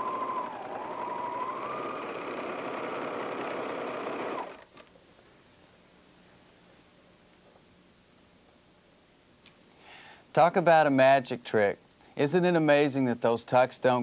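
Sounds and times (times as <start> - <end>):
serger sewing machine whining: 0.0 - 4.8.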